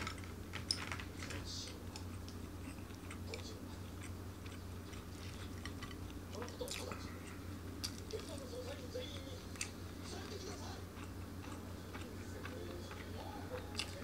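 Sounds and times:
person chewing: 0.0 - 14.0
steady low hum: 0.0 - 14.0.

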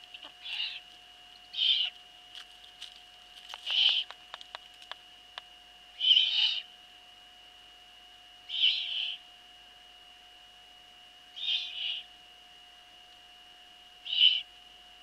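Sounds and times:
faint high whine: 0.0 - 15.0
owl chicks hissing begging calls: 0.2 - 0.8, 1.5 - 1.9, 3.6 - 4.2, 6.0 - 6.7, 8.5 - 9.2, 11.4 - 12.1, 14.1 - 14.4.

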